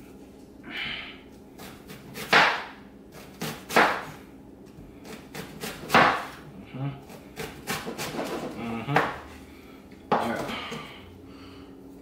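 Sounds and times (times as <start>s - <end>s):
knife slicing onion: 1.6s - 4.2s, 5.0s - 9.3s.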